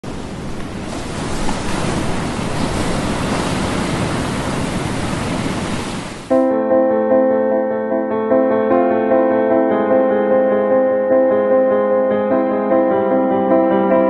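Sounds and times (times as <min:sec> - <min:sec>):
sea surf and breaking water: 0:00.0 - 0:06.6
piano music: 0:06.3 - 0:14.0.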